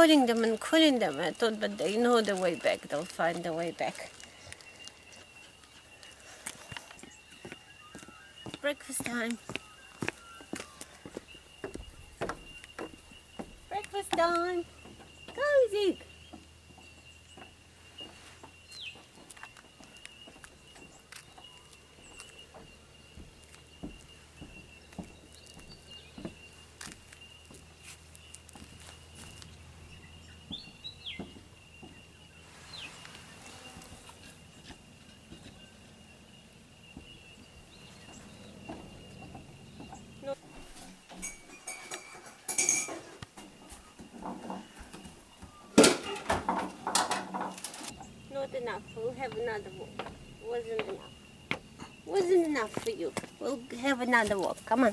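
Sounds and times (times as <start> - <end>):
items clattering in refrigerator: 41.0 - 47.9.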